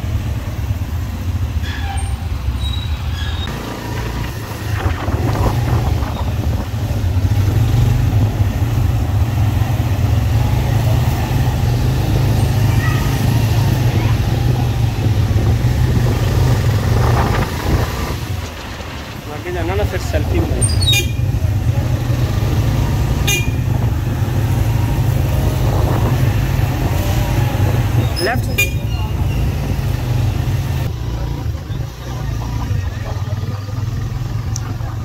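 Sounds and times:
road traffic rumble: 0.0s - 35.0s
faint voices: 30.9s - 35.0s.

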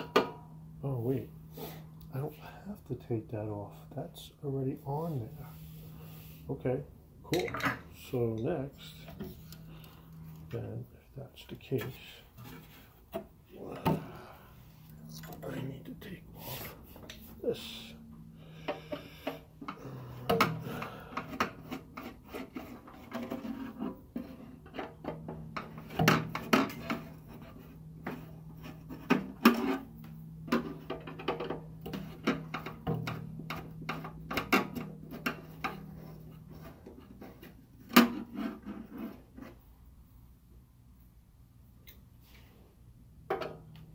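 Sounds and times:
clicks knocks and scraping on metal: 18.6s - 39.7s.

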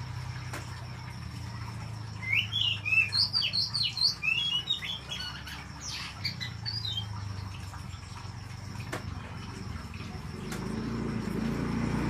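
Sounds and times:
bird singing whistled notes: 2.2s - 7.2s.

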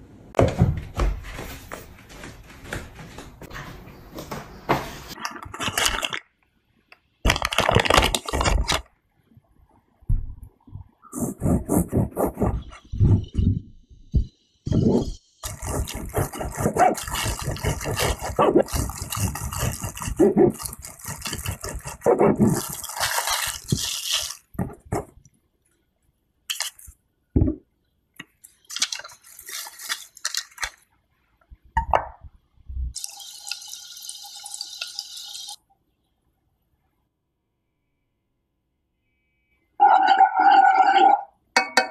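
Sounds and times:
knife cutting bread: 15.5s - 23.8s.

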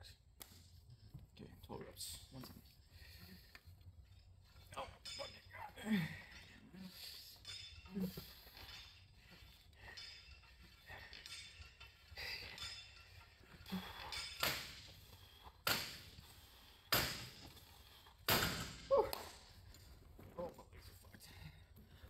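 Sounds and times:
faint strained breathing: 2.5s - 22.0s
gym machine weights clanking: 3.0s - 20.3s.

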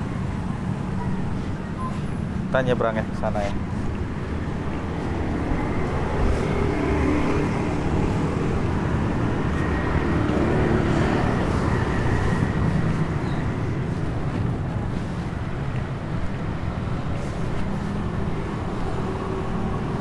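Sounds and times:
vehicles passing: 0.0s - 20.0s.

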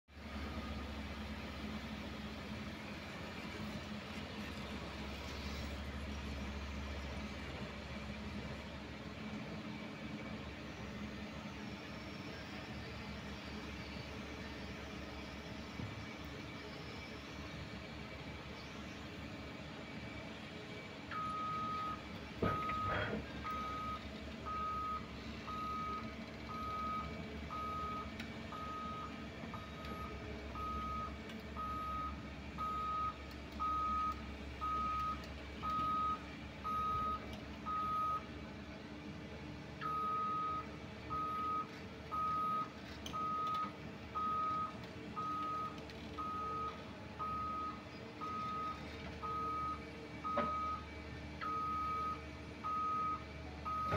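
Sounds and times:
diesel engine running: 0.1s - 53.9s
back-up alarm beeping: 21.1s - 38.3s, 39.8s - 50.8s, 51.4s - 53.9s.

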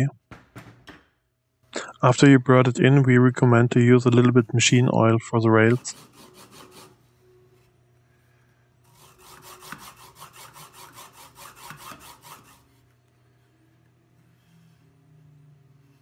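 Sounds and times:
bearings rasping along rods: 5.5s - 7.0s, 8.8s - 12.9s.

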